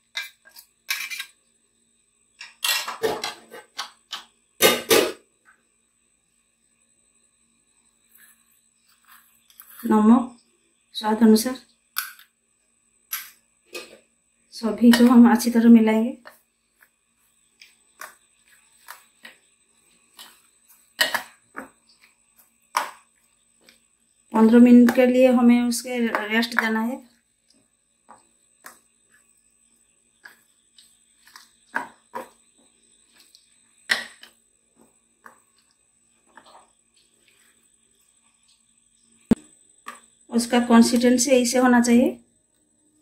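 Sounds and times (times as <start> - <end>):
spoon scraping against a bowl: 0.1 - 1.4.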